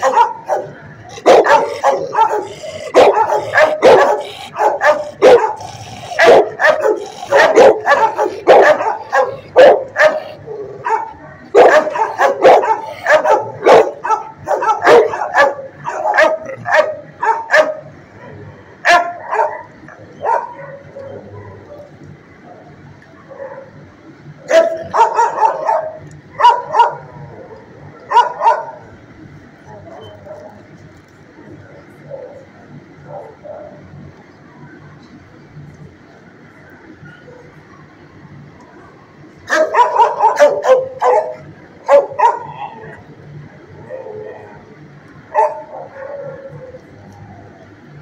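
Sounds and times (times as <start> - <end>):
dogs barking: 0.0 - 22.0, 23.2 - 23.8, 24.4 - 28.9, 32.0 - 33.9, 39.5 - 43.0, 45.3 - 47.5.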